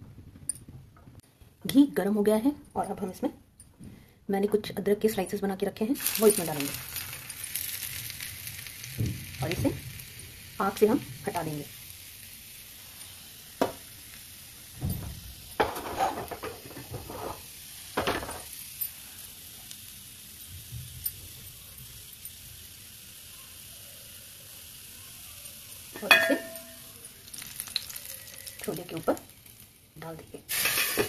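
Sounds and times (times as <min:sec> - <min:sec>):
ginger sizzling in hot ghee: 0:05.0 - 0:31.0
pot lid clattering: 0:26.0 - 0:26.8, 0:30.5 - 0:31.0.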